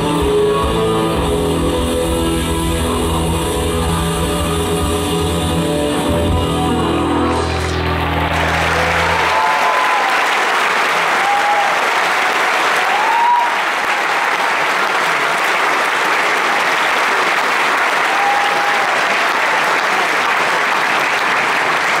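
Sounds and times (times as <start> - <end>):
audience applauding: 7.2 - 22.0
audience cheering: 7.2 - 22.0.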